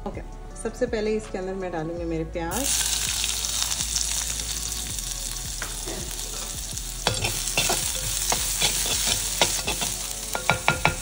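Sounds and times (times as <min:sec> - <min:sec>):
onions sizzling in hot oil: 0:02.5 - 0:11.0
utensil scraping a pan: 0:05.9 - 0:11.0.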